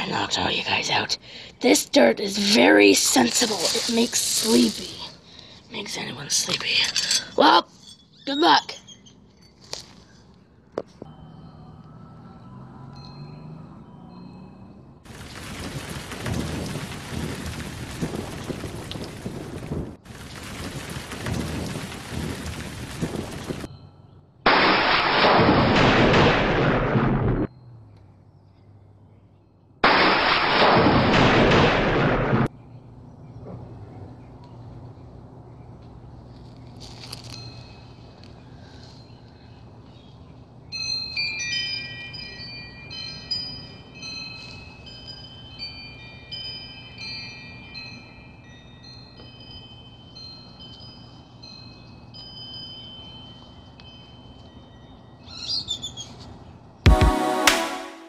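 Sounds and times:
low outdoor background: 0.0s - 58.0s
rain hiss: 2.4s - 5.3s, 15.1s - 23.7s
bell-like chimes ringing: 11.1s - 15.0s, 23.7s - 24.3s, 40.8s - 55.3s
thunder rumbles: 15.1s - 23.7s, 24.5s - 27.5s, 29.8s - 32.5s.

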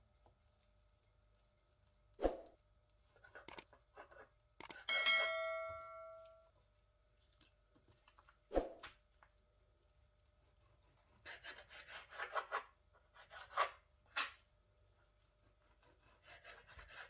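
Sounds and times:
bell-like notification ding: 4.9s - 6.4s.

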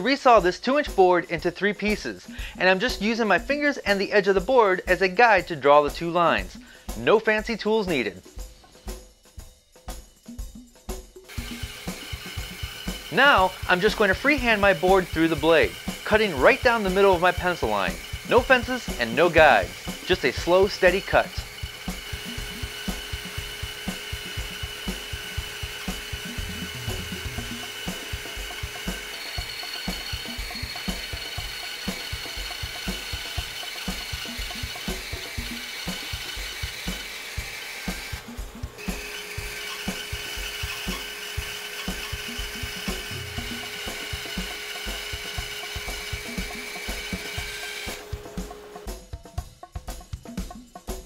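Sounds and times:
bandsaw cutting wood: 11.3s - 48.9s
low thumping beat: 16.7s - 51.0s.

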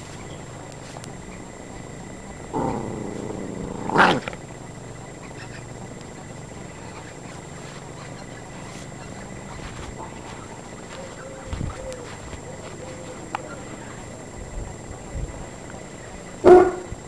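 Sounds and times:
dog whining growl: 2.5s - 4.4s.

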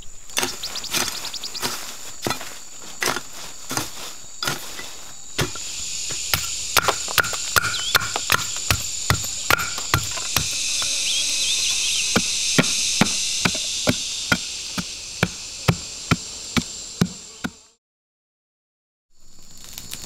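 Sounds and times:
high drone of insects: 0.0s - 17.8s, 19.2s - 20.0s
machete chopping bamboo: 5.4s - 10.9s.

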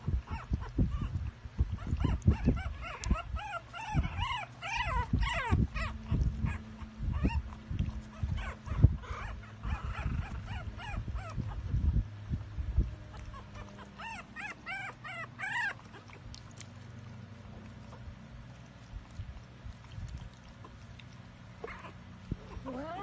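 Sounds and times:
puppies whimpering and squeaking: 0.0s - 12.0s, 13.0s - 16.6s, 21.6s - 23.0s.

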